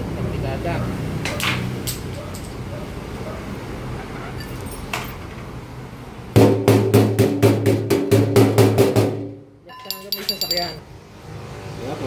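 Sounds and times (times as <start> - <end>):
hammer striking hollow metal tank: 6.4 - 9.4.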